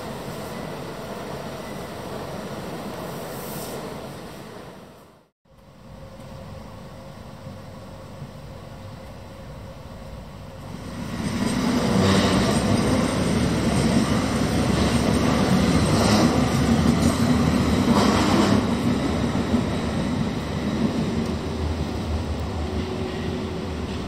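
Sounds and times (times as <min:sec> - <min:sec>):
train wheels rumbling on rails: 0:05.9 - 0:24.0.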